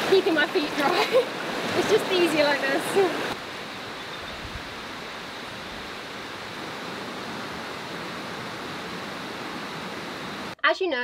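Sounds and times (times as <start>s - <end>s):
stream water rushing over rocks: 0.0s - 10.6s.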